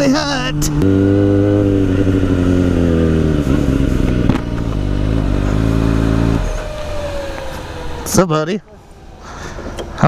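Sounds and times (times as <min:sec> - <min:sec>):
motorcycle engine running low speed: 0:00.0 - 0:08.1.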